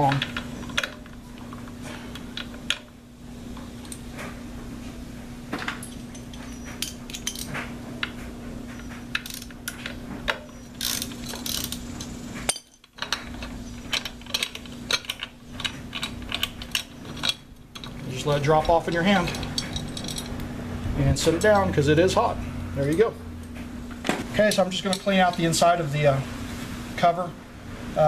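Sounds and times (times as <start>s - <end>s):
low steady hum: 0.0s - 28.0s
metallic clicks from screws: 8.8s - 18.0s
hand ratchet clicking: 9.1s - 12.2s.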